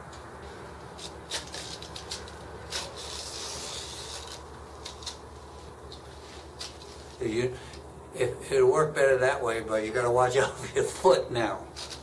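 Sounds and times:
fabric rustling and scraping: 0.4s - 7.2s.

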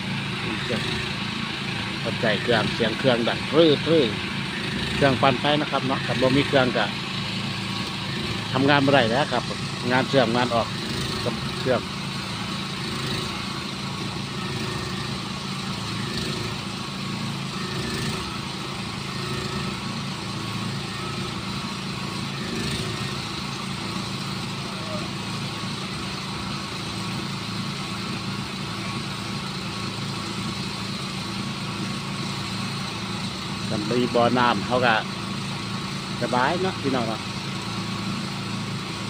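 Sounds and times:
portable generator engine running: 0.0s - 39.0s.

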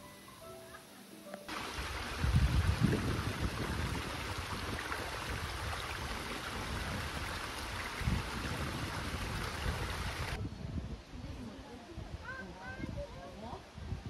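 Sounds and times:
stream flowing over rocks: 1.5s - 10.4s.

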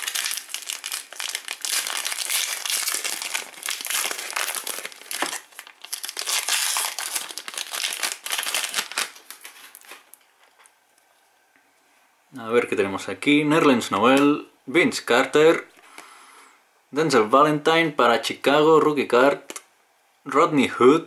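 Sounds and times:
foil pack tearing open: 0.0s - 10.2s
foil wrapper crinkling: 0.0s - 10.7s.

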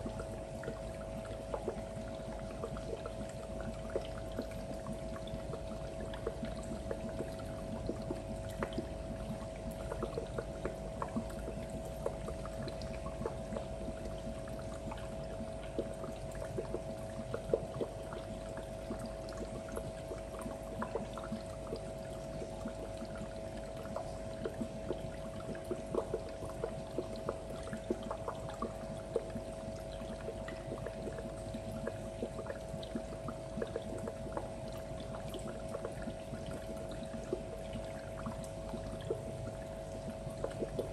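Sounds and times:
filter hum: 0.0s - 40.9s
water pouring and trickling: 0.0s - 40.9s.

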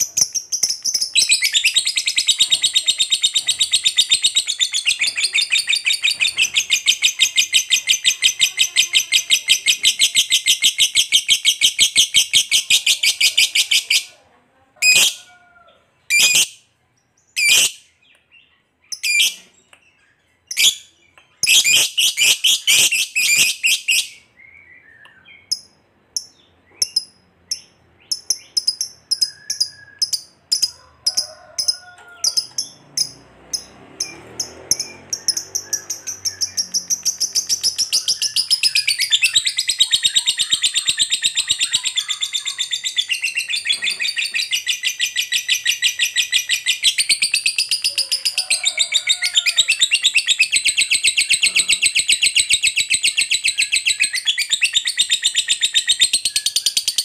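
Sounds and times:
lovebird chattering trill: 17.4s - 17.8s, 20.5s - 24.2s, 25.3s - 31.7s, 32.3s - 57.0s.

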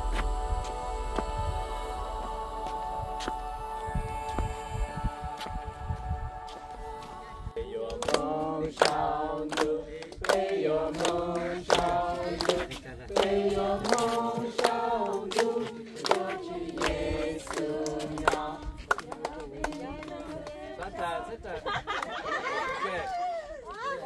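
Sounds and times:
sustained chord: 0.0s - 7.6s
choir singing slow song: 0.0s - 22.5s.

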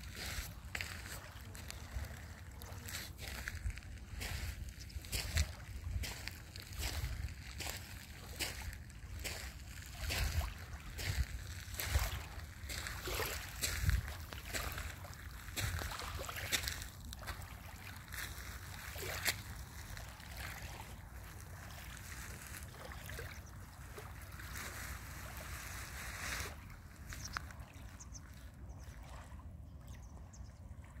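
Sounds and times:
waves lapping on pebbles: 0.0s - 29.4s
wind rumble on microphone: 13.6s - 14.9s.

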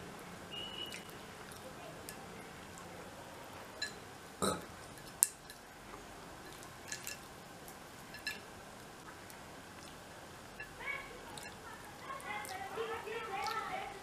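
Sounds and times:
small burp: 4.4s - 4.7s.

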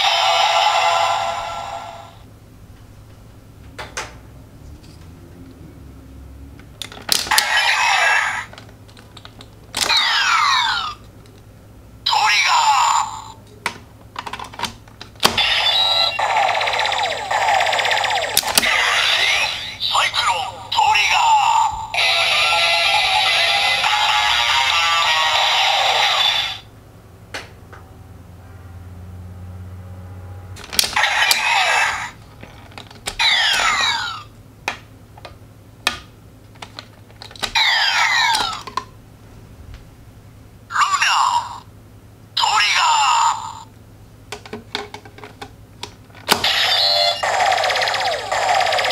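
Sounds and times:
warbling electronic beeps and sweeps: 15.4s - 19.8s.

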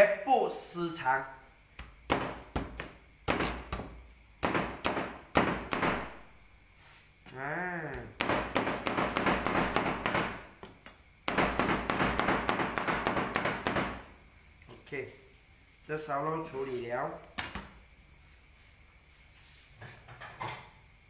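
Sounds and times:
cleaver chopping on cutting board: 1.8s - 6.2s
person saying ah: 7.3s - 8.1s.

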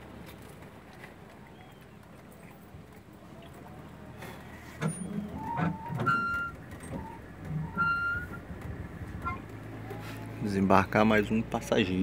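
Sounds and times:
boat diesel engine running: 0.0s - 12.0s
short high-pitched squeaks: 4.6s - 8.5s, 9.2s - 10.3s.

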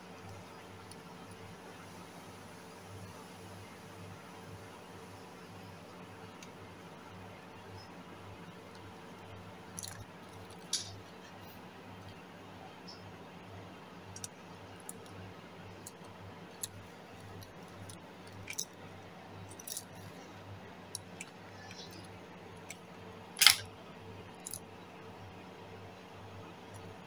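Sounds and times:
metal fishing tackle clinking: 19.5s - 19.9s.

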